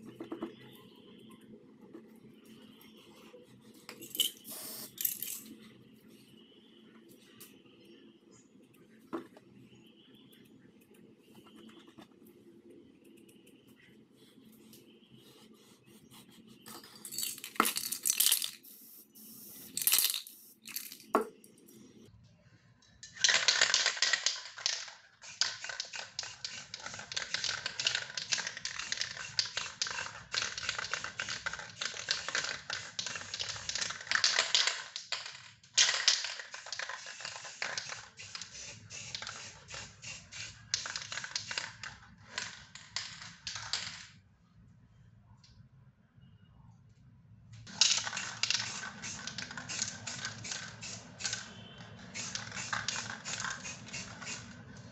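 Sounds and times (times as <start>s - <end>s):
aerosol spray can hissing: 4.5s - 5.0s, 18.6s - 20.6s, 37.0s - 40.6s, 48.2s - 51.4s, 52.2s - 54.6s.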